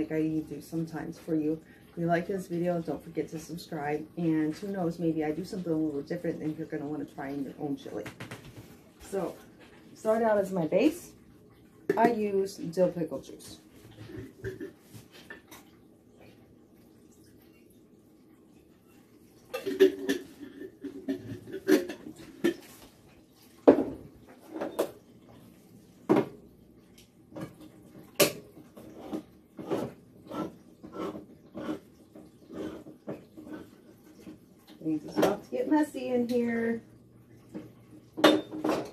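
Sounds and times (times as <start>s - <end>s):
glass jar and dishes clinking: 38.2s - 38.9s.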